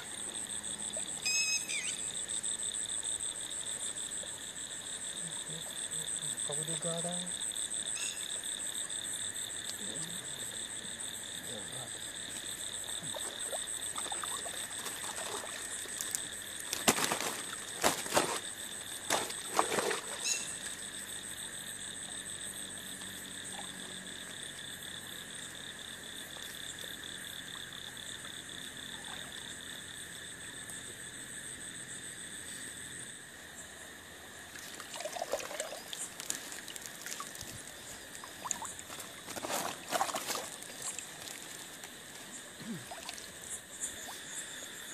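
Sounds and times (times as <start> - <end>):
frogs trilling: 0.0 - 44.9
water sloshing: 13.0 - 20.6, 34.5 - 42.0.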